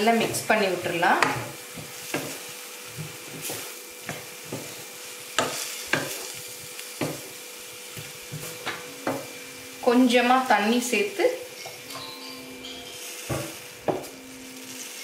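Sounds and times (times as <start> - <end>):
vegetables sizzling in a frying pan: 0.0 - 15.0
spatula scraping a pan: 1.1 - 7.2.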